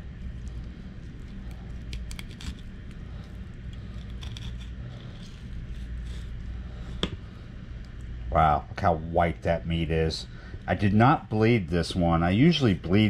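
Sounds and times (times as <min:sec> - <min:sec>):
low hum: 0:00.0 - 0:13.0
knife scraping fish: 0:01.3 - 0:03.0, 0:03.6 - 0:07.1.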